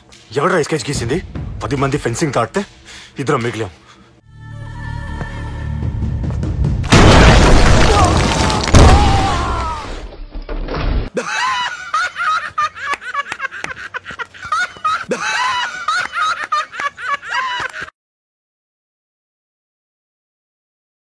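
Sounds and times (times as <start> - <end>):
dramatic film score: 0.0 - 3.5, 4.3 - 6.9
high-pitched voices laughing: 11.2 - 17.9
sharp clapping: 12.9 - 13.8.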